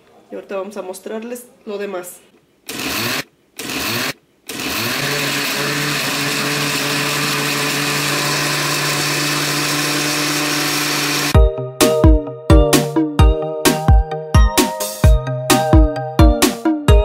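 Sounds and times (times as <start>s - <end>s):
blender motor whirring: 2.7s - 11.4s
music: 11.4s - 17.0s.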